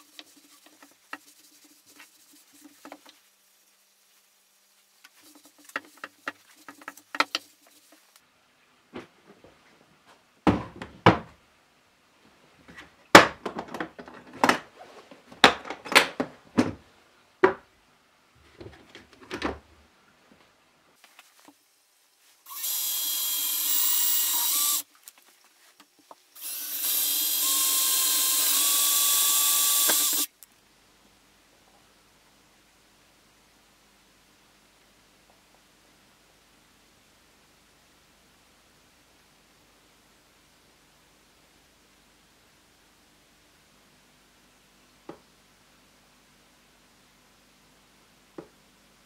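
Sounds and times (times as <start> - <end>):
knocks and clatters of plastic case: 10.4 - 11.4, 13.2 - 14.6
drill motor whine: 22.5 - 24.8, 26.4 - 30.3.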